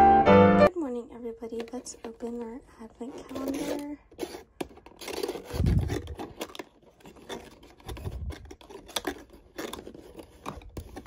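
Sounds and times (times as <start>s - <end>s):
cardboard scraping and rustling: 3.0s - 11.0s.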